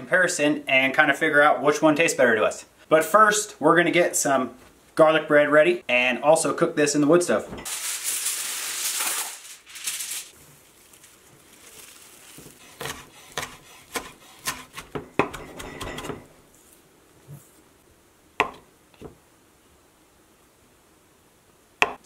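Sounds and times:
loud crinkling rustle: 7.7s - 13.4s
knife cutting into butter: 12.4s - 16.2s
knife chopping on wooden board: 12.6s - 16.3s.

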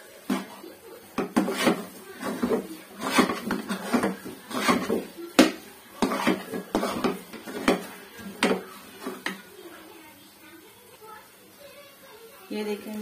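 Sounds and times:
metal spoon scraping a metal pan: 1.2s - 9.4s.

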